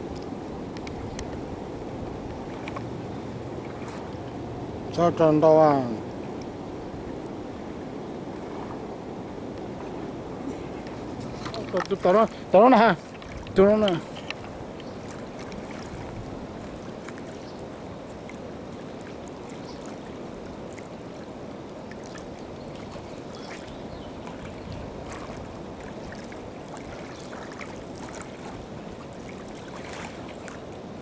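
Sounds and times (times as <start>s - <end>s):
river water rushing: 0.0s - 31.0s
small trickles and splashes: 10.4s - 31.0s.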